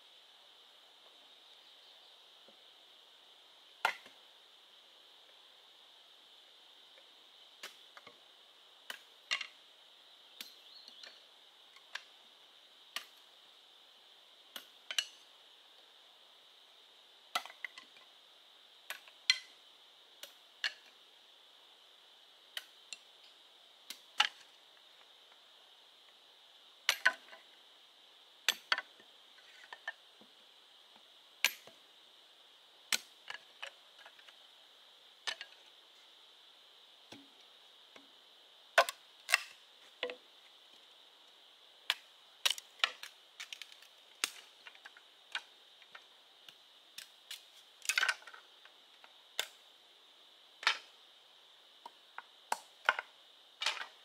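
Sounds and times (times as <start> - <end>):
forest insects droning: 0.0 - 54.0.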